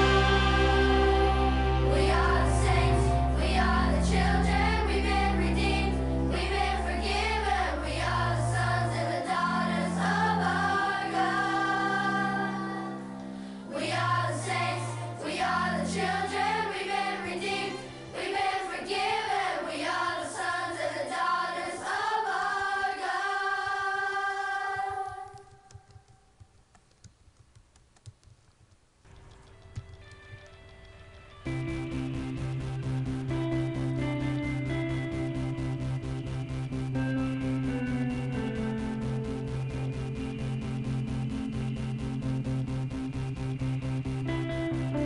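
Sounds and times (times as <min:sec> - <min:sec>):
group singing worship song: 0:00.0 - 0:25.7
faint clicks: 0:25.3 - 0:31.4
stepping bass line: 0:31.5 - 0:45.0.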